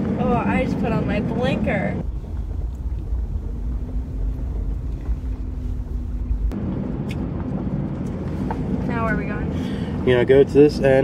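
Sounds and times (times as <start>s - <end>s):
faint steady hum: 0.0s - 7.3s
car engine and tyres rumbling: 0.0s - 11.0s.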